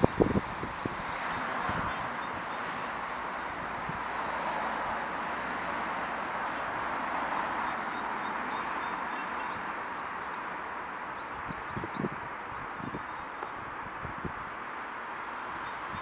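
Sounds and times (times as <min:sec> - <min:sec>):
distant city traffic hum: 0:00.0 - 0:16.0
small birds chirping: 0:07.5 - 0:13.6.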